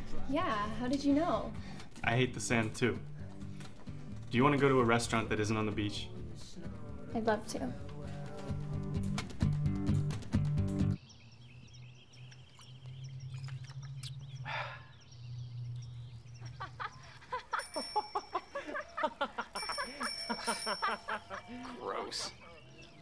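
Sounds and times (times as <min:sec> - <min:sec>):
music: 0:00.0 - 0:11.0
birds chirping: 0:10.8 - 0:23.0
bicycle bell ringing: 0:17.3 - 0:21.9.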